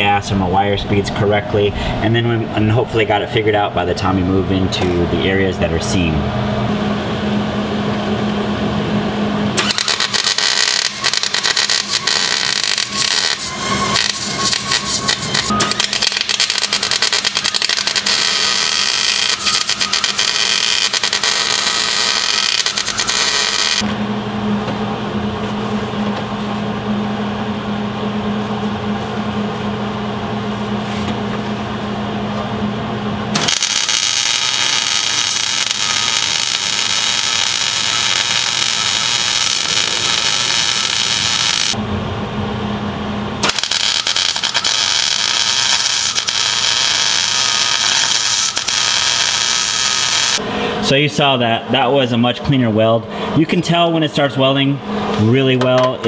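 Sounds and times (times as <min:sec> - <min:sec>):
low steady hum: 0:00.0 - 0:09.6, 0:11.9 - 0:49.4
welder arc crackle and hiss: 0:09.6 - 0:23.8, 0:33.3 - 0:41.8, 0:43.4 - 0:50.4.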